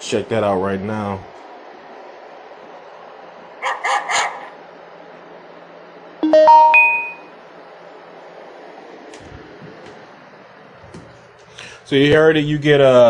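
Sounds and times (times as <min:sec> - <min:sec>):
recorded dog barking: 0:03.6 - 0:04.6
rising chime: 0:06.2 - 0:07.3.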